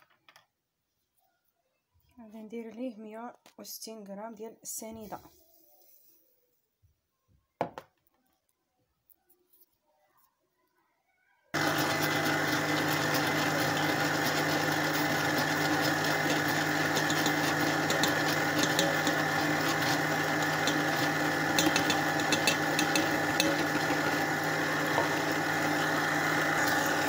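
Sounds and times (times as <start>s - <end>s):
electric mixer whisking: 11.6s - 27.0s.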